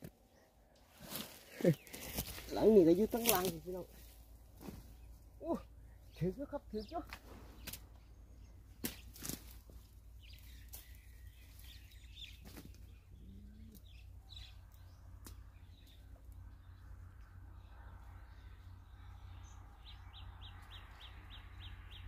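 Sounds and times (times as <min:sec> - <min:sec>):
dry twigs snapping: 0:01.0 - 0:04.7, 0:07.1 - 0:07.9, 0:08.8 - 0:09.6, 0:14.6 - 0:16.0.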